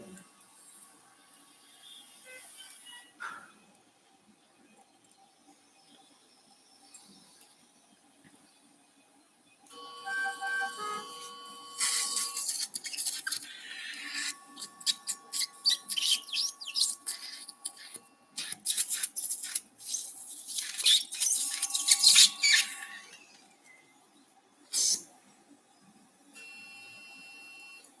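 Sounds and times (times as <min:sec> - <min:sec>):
steady electronic tone: 0:09.7 - 0:12.5, 0:13.5 - 0:18.4, 0:21.2 - 0:23.3.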